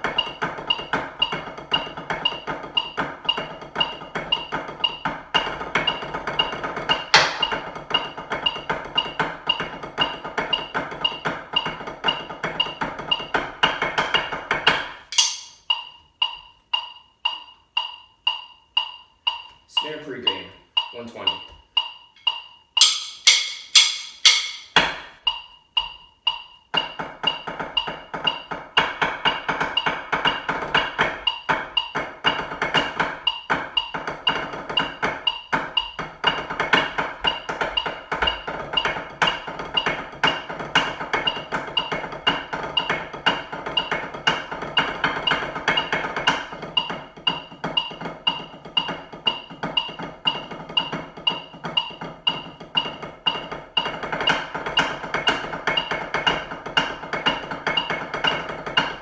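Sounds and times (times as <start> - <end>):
drumsticks on practice pad: 6.9 - 9.7, 14.7 - 59.0
metronome click: 15.0 - 28.5.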